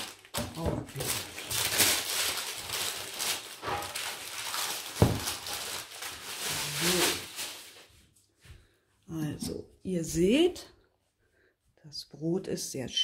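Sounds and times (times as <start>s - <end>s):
baking paper rustling: 0.0s - 8.2s.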